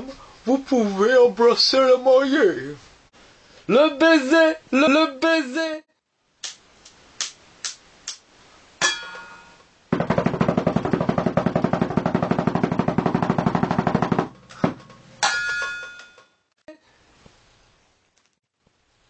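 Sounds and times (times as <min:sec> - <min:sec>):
snare drum hits and roll: 0:09.9 - 0:15.0.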